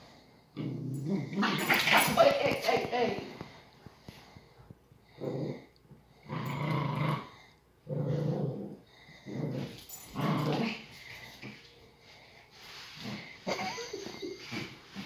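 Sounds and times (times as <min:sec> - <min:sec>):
dogs growling in play: 0:00.0 - 0:02.2, 0:05.0 - 0:11.7, 0:12.7 - 0:15.0.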